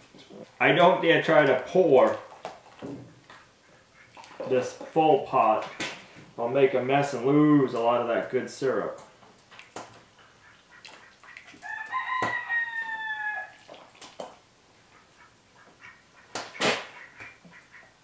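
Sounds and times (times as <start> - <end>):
rooster crowing: 11.6 - 13.6.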